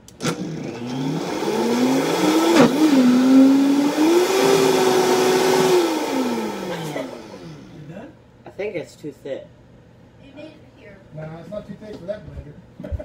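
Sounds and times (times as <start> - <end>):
blender motor running: 0.0 - 7.9
sharp knock in blender: 2.4 - 3.1.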